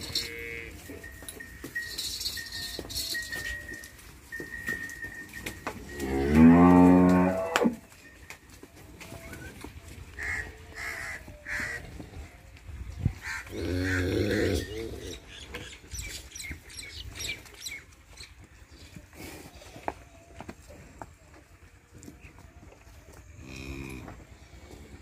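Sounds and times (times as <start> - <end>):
cow mooing: 5.9 - 7.8
crows cawing: 10.2 - 11.8.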